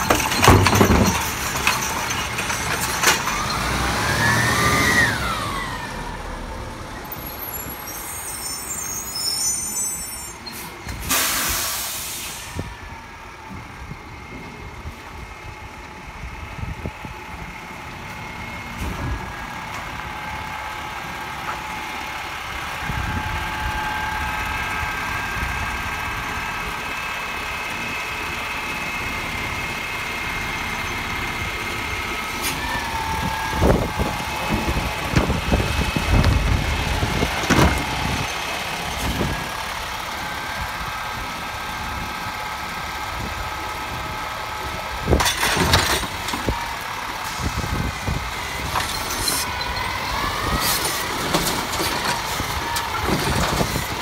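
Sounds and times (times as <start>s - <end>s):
metal clanks and knocks: 0.0s - 3.6s, 45.2s - 46.6s
diesel truck engine running: 0.0s - 9.3s, 10.0s - 54.0s
hydraulic arm whine: 0.0s - 15.3s, 45.1s - 54.0s
air brake hiss: 7.9s - 12.7s.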